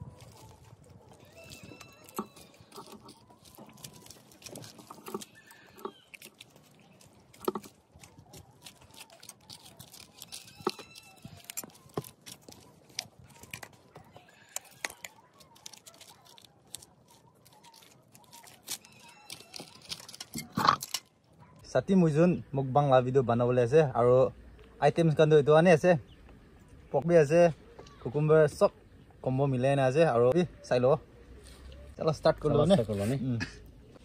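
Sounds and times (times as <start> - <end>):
leaves and food being handled: 0.0 - 21.6.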